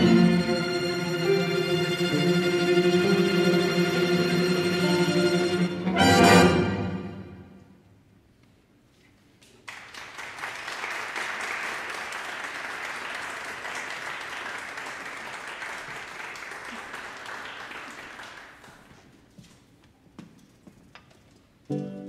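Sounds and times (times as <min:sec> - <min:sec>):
audience applause: 0:09.7 - 0:19.0.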